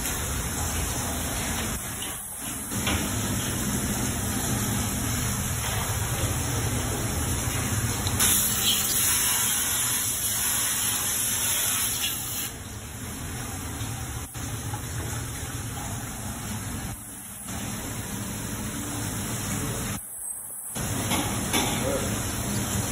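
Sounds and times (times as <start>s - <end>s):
spraying water rushing: 0.0s - 13.4s.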